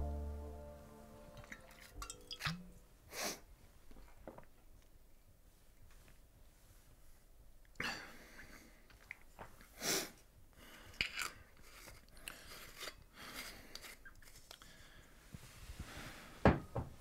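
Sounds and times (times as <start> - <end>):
person breathing faintly: 14.6 - 16.6.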